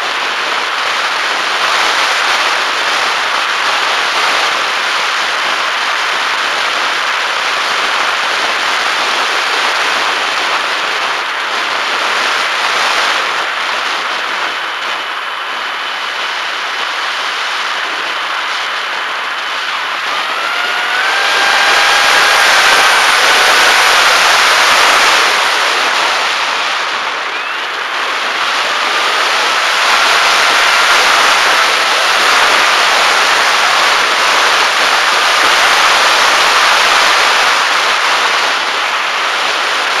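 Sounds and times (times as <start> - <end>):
electric motor and propeller drone: 0.0 - 40.0
wind rush: 0.0 - 40.0
faint high motor whine: 8.8 - 40.0.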